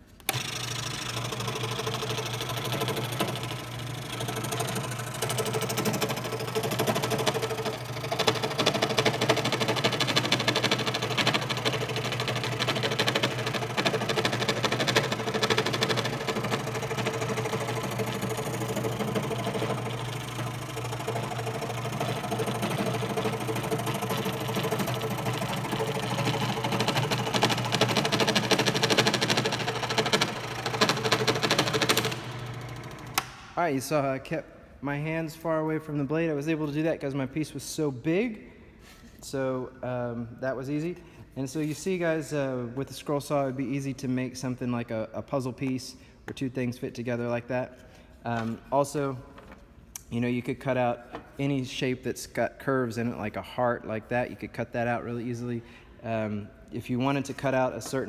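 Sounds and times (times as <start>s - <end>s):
scroll saw cutting wood: 0.2s - 33.4s.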